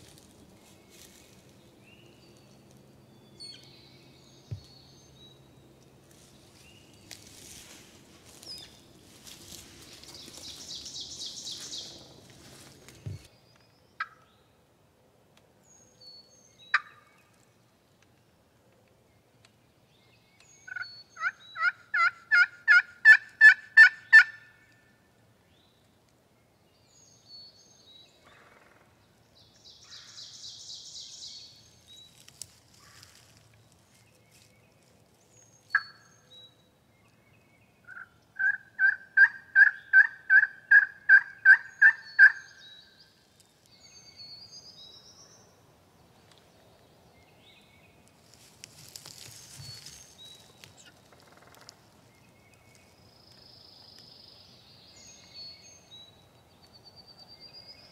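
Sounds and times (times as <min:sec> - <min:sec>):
wild turkey yelping: 0:16.7 - 0:17.0, 0:20.7 - 0:24.5, 0:37.9 - 0:42.4.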